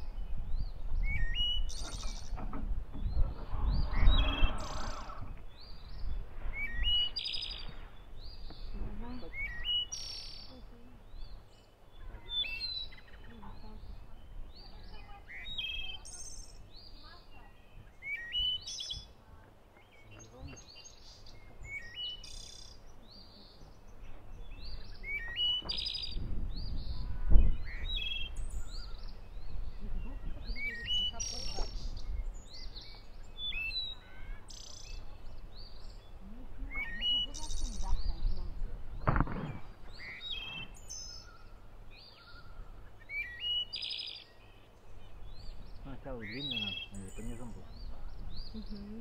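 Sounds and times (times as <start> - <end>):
songbirds chirping and trilling: 0.0 - 49.0
microphone handling noise: 1.6 - 6.8, 37.9 - 40.8
dull thump: 39.0 - 39.7.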